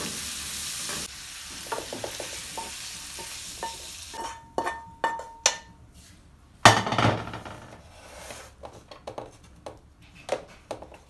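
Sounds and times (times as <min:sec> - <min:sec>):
pan clattering down: 0:06.7 - 0:07.8.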